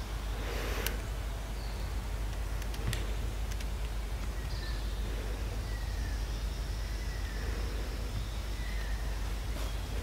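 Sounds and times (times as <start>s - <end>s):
low forest rumble: 0.0s - 10.0s
sharp clicks: 0.8s - 1.1s, 2.3s - 4.6s.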